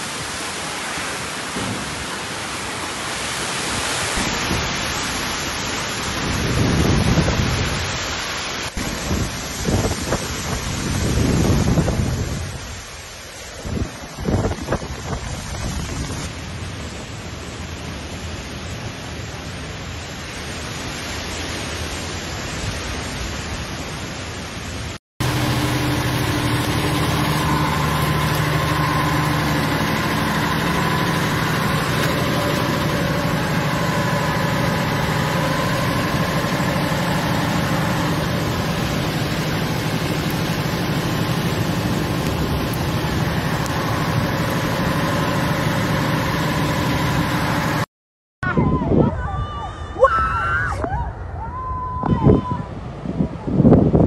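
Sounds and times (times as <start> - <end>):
driving rain: 0.0 - 47.9
hurricane wind: 0.0 - 54.0
steady mechanical hum: 25.2 - 47.9.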